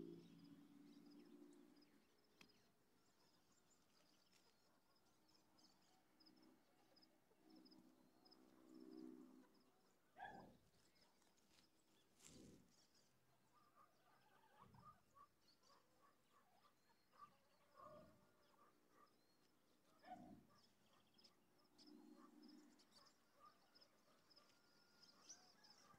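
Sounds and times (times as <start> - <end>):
small birds chirping: 10.2 - 25.9.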